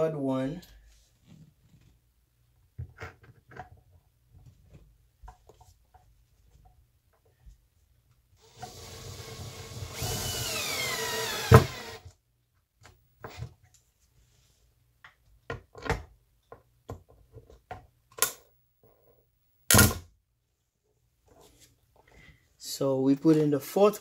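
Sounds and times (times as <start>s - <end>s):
screw grinding into wood: 8.4s - 12.0s.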